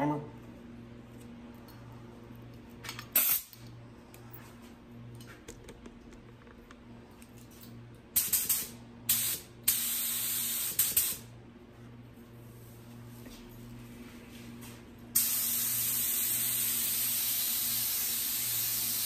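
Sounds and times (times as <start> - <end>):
spray gun hissing air: 8.2 - 11.2, 15.2 - 19.0.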